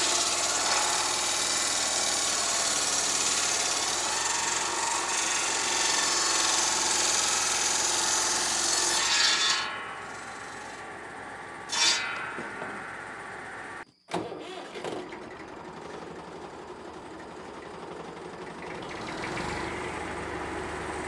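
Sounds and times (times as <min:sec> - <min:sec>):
circular saw cutting timber: 0:00.0 - 0:13.8, 0:18.7 - 0:21.0
saw blade spinning freely: 0:00.0 - 0:13.8.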